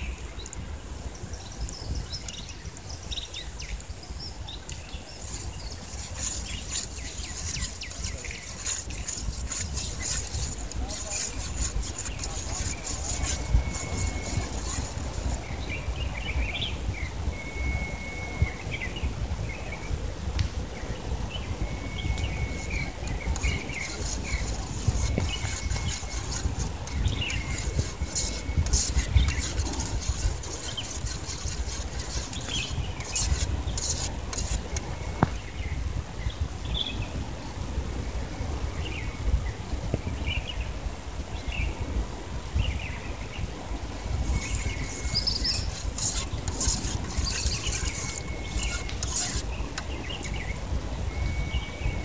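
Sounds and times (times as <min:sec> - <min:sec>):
birds chirping: 0:01.2 - 0:20.0, 0:20.8 - 0:37.0, 0:42.6 - 0:52.0
spoon stirring paste in pot: 0:05.2 - 0:15.8, 0:22.3 - 0:34.8, 0:44.3 - 0:50.4.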